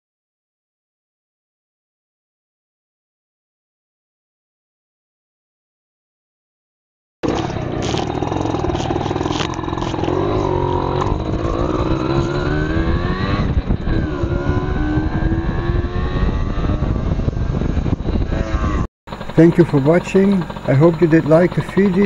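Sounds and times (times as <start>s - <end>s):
wind noise on microphone: 7.2s - 19.5s
moped engine accelerating: 7.2s - 22.0s.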